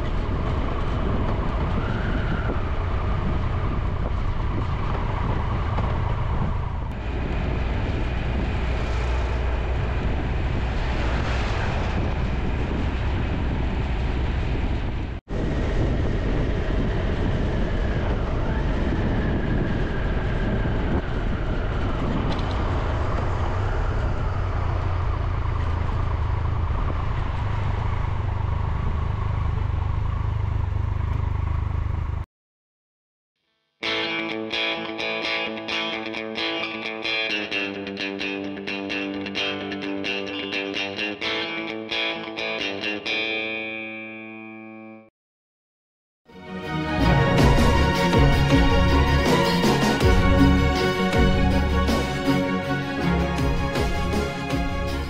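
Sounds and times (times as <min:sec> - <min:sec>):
wind and road noise: 0:00.0 - 0:32.3, 0:46.6 - 0:55.0
motorcycle engine running: 0:22.2 - 0:32.2.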